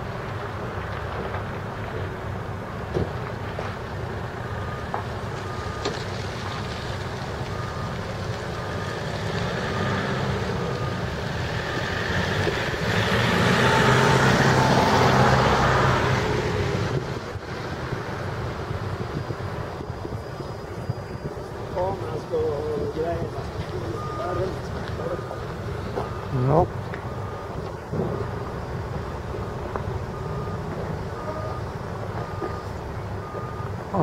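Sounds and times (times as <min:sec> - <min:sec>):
diesel engine running: 0:00.0 - 0:34.0
reversing alarm beeping: 0:04.4 - 0:06.0, 0:07.3 - 0:16.0, 0:19.1 - 0:34.0.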